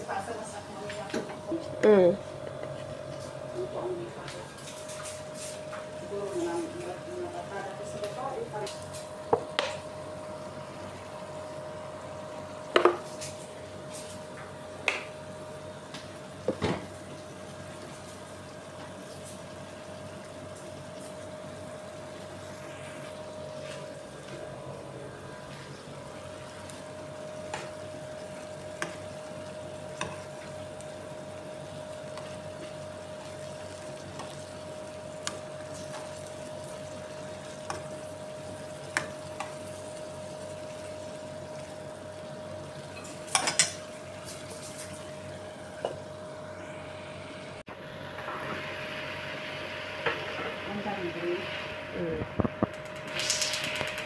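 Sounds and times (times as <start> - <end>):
shrimp sizzling in frying pan: 25.5 - 46.3, 48.1 - 54.0.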